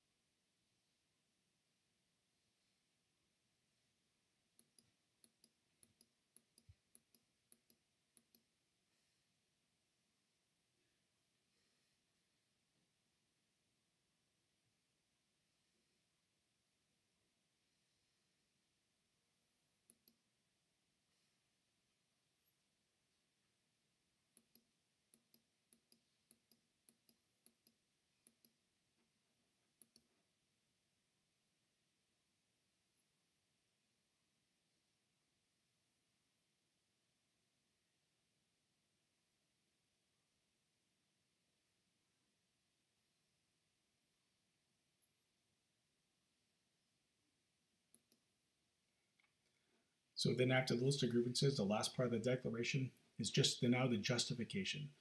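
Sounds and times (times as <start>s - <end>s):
computer mouse clicks: 4.6s - 8.5s, 19.9s - 20.2s, 24.4s - 28.6s, 29.8s - 30.1s, 47.9s - 48.2s.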